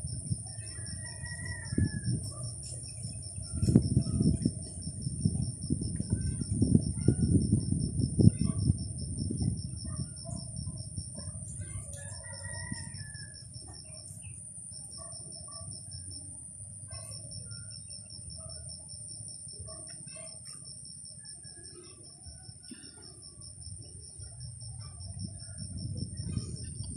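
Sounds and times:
high insect drone: 0.0s - 26.9s
rooster crowing: 0.6s - 2.4s, 11.7s - 13.5s.

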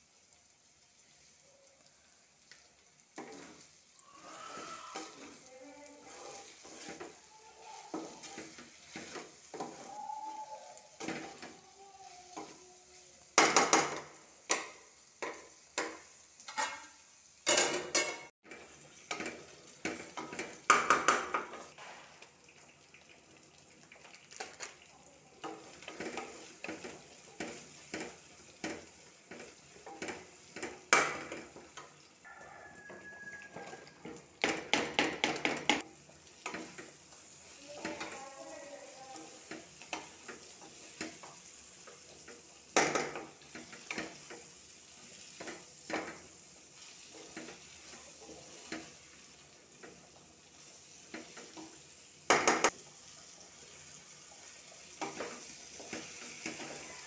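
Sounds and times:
faint sizzle: 0.0s - 57.0s
spatula knocking and scraping pot: 4.6s - 9.9s, 13.4s - 16.9s, 17.5s - 21.9s, 32.7s - 36.9s.

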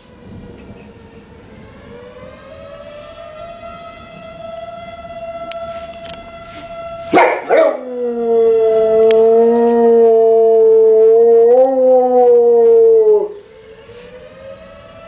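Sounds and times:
tornado siren steady tone: 0.0s - 15.0s
dog howling: 7.1s - 13.4s.

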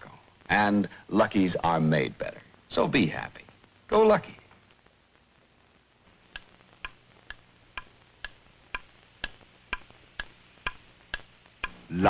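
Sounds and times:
clock ticking: 6.3s - 12.0s.

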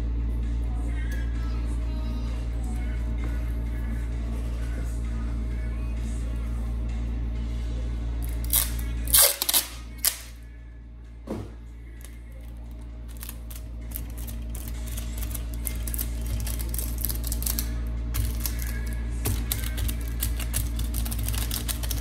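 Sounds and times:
packing tape ripping off roll: 8.2s - 10.4s, 13.1s - 22.0s
tape crackling: 8.2s - 10.4s, 11.9s - 22.0s.

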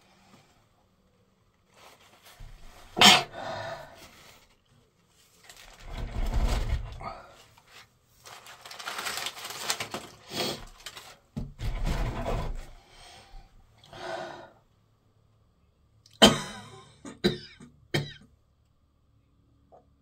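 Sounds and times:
person coughing: 3.0s - 3.4s, 16.1s - 18.2s
person sneezing loudly: 3.0s - 3.4s.

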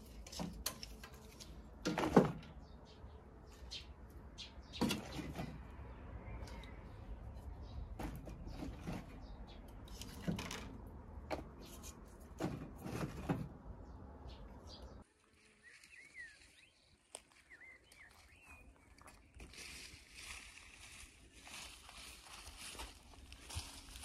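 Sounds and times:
firewood clattering in stove: 0.0s - 2.5s
faint birdsong: 0.0s - 24.0s.

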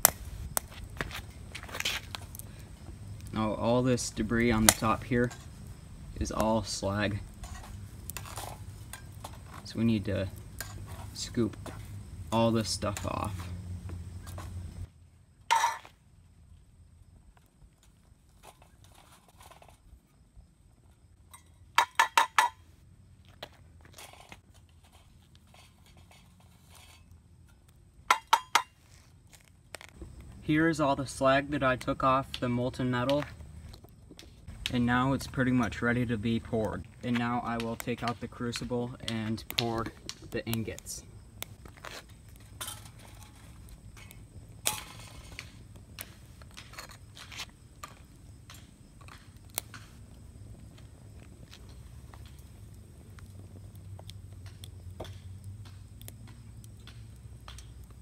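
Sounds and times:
metal tongs clinking and scraping: 42.6s - 43.5s.

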